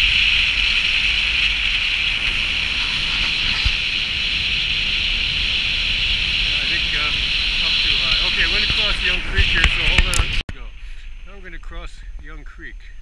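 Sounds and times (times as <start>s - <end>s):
car road and wind noise: 0.0s - 10.4s.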